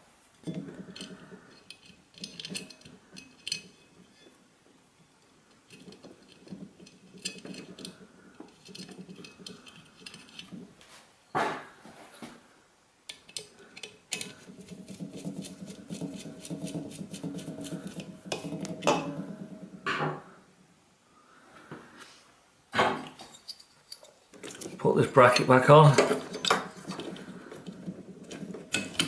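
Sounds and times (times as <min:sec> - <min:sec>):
tool clicking on metal parts: 0:00.9 - 0:03.8, 0:05.7 - 0:10.6, 0:13.1 - 0:18.8, 0:23.3 - 0:29.0.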